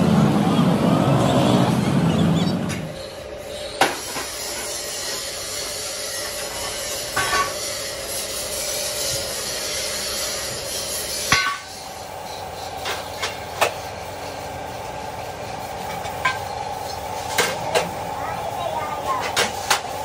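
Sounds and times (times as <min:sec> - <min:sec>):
hammer striking steel frame: 0:11.2 - 0:12.0
metal clanking: 0:11.2 - 0:13.9.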